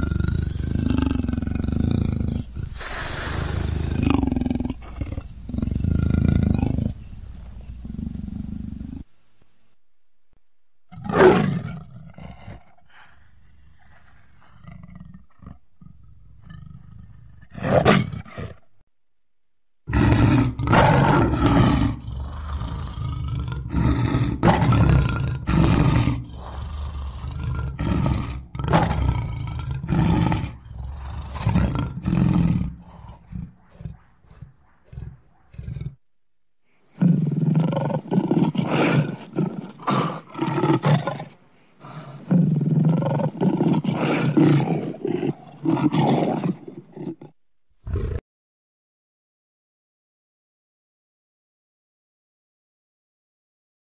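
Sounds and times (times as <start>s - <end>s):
lion roaring and grunting: 0.0s - 9.1s, 19.9s - 36.0s, 36.9s - 48.2s.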